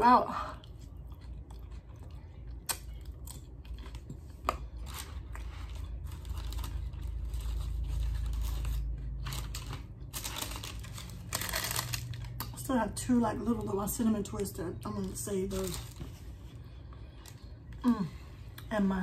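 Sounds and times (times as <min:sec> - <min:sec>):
chewing crunchy chips: 0:00.4 - 0:12.6.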